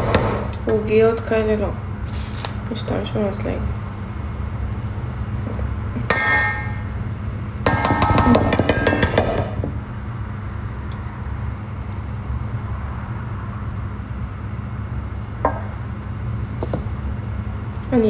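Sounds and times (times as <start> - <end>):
steady low hum: 0.0 - 18.0
fork clinking against metal bowl: 6.1 - 6.8, 7.7 - 9.7.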